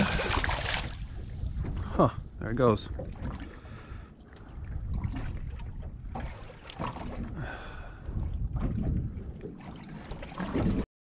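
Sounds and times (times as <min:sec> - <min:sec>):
water slapping against hull: 0:00.0 - 0:10.8
wind buffeting microphone: 0:00.0 - 0:10.8.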